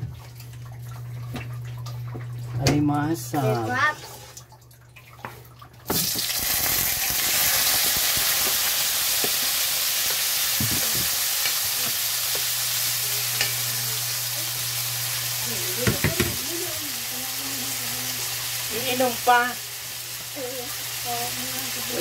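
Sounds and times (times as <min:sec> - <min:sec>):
vegetables sizzling in hot oil: 0:05.9 - 0:22.0
wooden spatula knocking on pan: 0:15.8 - 0:16.4.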